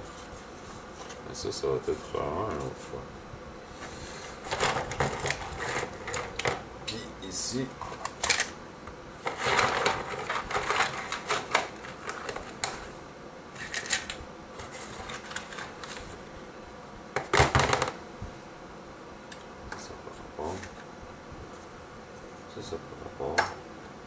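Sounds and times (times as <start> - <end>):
plastic parts clicking and clattering: 7.8 - 8.5, 9.3 - 12.8, 13.6 - 14.2.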